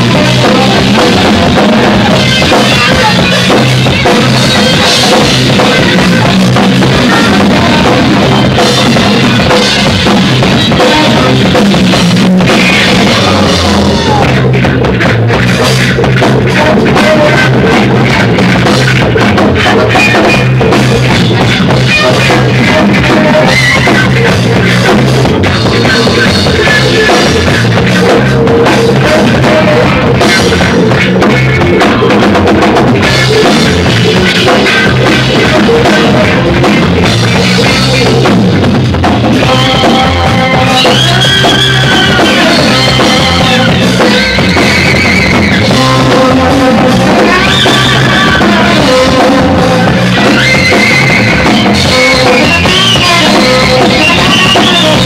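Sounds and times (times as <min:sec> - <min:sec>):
bass drum beat: 0:00.0 - 0:55.0
live rock band playing: 0:00.0 - 0:55.0
melodic lead line: 0:00.0 - 0:55.0.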